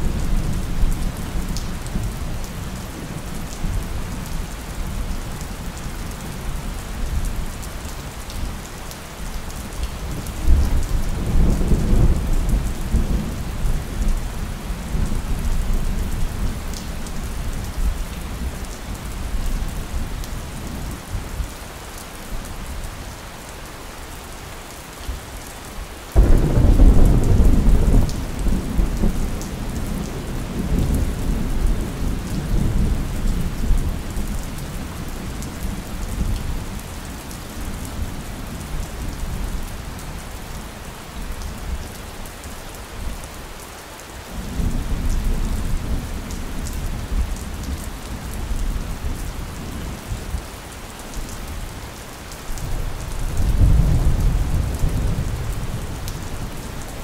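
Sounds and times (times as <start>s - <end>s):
steady rain: 0.0s - 57.0s
thunder clap and rumble: 26.2s - 34.0s.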